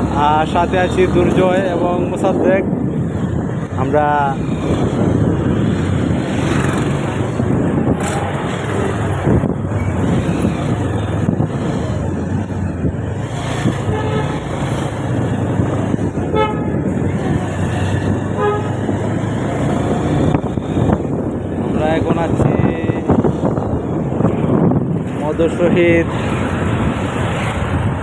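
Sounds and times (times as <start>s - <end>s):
motorcycle engine rumble: 0.0s - 28.0s
vehicle horn toots: 13.9s - 14.4s, 16.3s - 16.8s, 18.4s - 18.7s.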